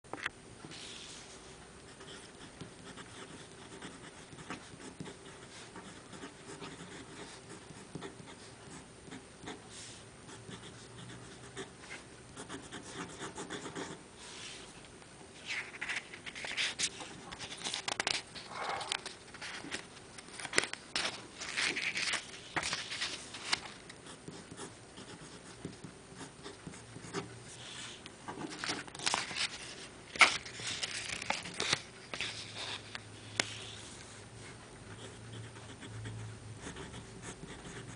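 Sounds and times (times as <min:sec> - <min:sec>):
paper card rustling: 0:15.4 - 0:24.0, 0:28.3 - 0:33.6.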